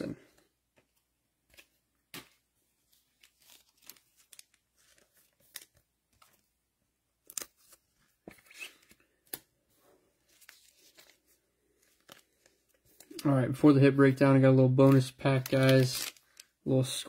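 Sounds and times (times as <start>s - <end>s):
card packaging rustling: 1.5s - 6.6s, 10.2s - 13.2s, 14.8s - 16.6s.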